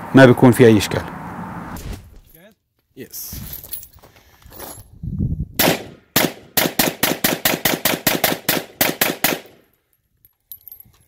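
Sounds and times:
rapid pistol shots: 5.6s - 9.6s.

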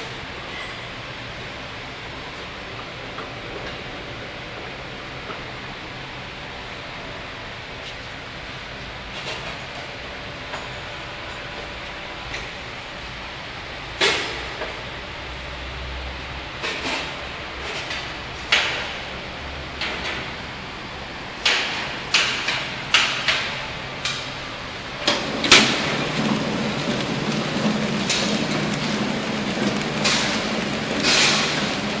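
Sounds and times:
low machine hum: 23.6s - 32.0s
packing machine whirring: 24.8s - 32.0s
machine clacking: 25.0s - 32.0s.

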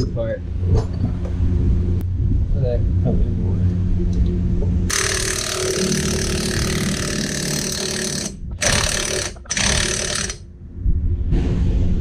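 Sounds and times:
impact wrench hammering: 4.9s - 10.4s.

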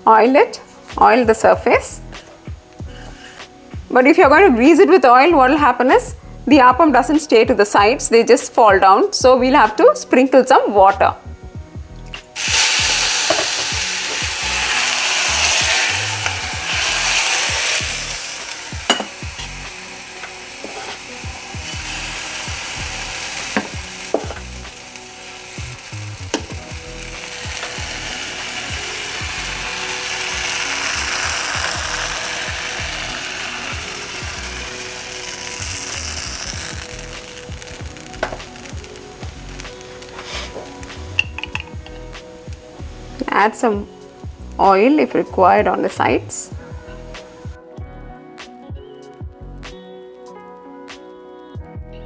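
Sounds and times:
batter sizzling in pan: 12.3s - 43.6s
water sizzling in hot pan: 12.3s - 45.8s.

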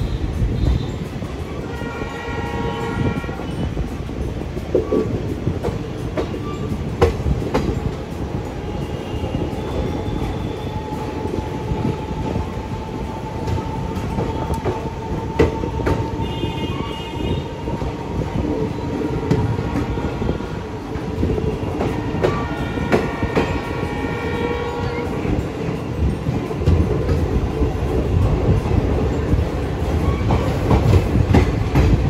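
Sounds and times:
train wheels rumbling on rails: 0.0s - 32.0s
clacks over rail joints: 3.3s - 8.1s, 24.8s - 32.0s.

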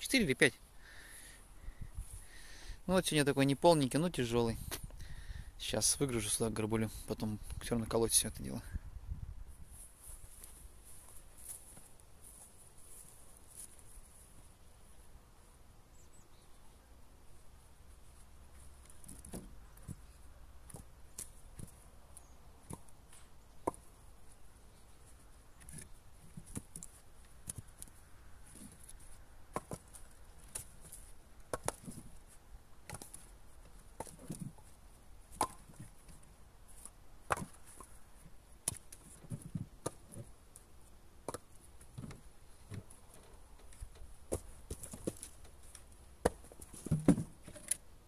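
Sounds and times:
logs clunking onto woodpile: 18.5s - 21.8s, 25.6s - 40.4s, 41.2s - 47.8s.

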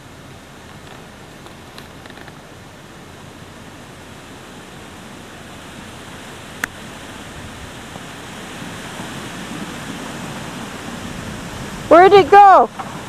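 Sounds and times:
steady rushing hiss: 0.0s - 13.0s.

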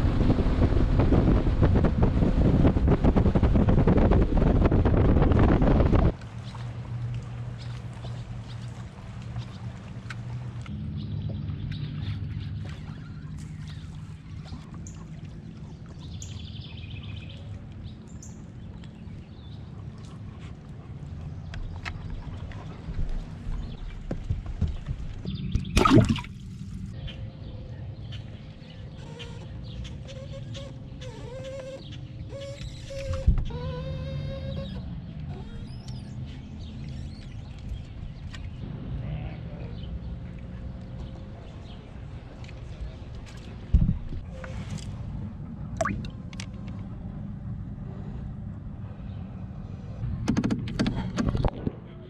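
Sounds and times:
steady low rumble: 0.0s - 28.9s, 37.4s - 52.0s
water splashing: 5.4s - 10.8s, 25.3s - 27.0s, 42.0s - 46.6s.

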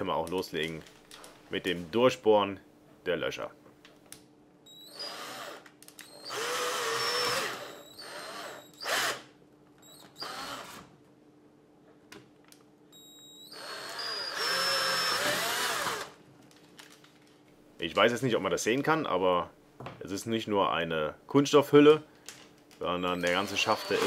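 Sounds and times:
cordless drill boring plastic: 4.7s - 9.2s, 9.8s - 10.8s, 13.4s - 16.2s, 23.0s - 24.0s.

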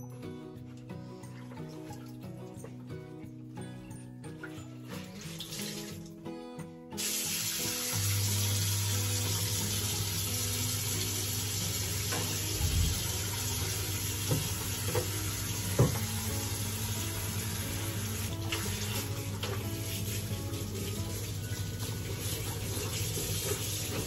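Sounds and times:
faint background music: 0.0s - 24.0s
water running into sink: 4.5s - 6.1s, 7.0s - 24.0s.

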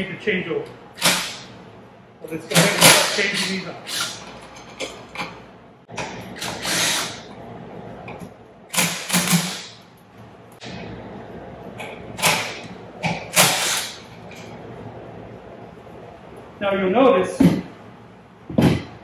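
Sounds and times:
impact wrench bursts: 0.9s - 1.6s, 2.5s - 5.0s, 6.0s - 7.3s, 8.7s - 9.9s, 12.2s - 14.2s.

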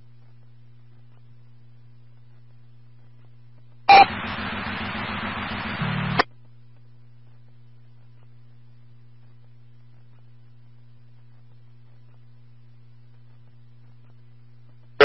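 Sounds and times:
low electrical hum: 0.0s - 15.0s
radio static hiss: 3.9s - 6.3s.

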